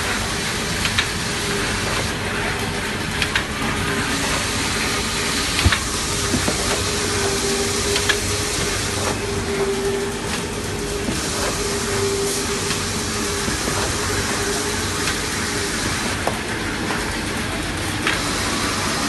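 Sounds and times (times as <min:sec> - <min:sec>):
cutting machine hum: 0:00.0 - 0:19.0
machine clicks and knocks: 0:01.8 - 0:03.5, 0:05.4 - 0:09.2.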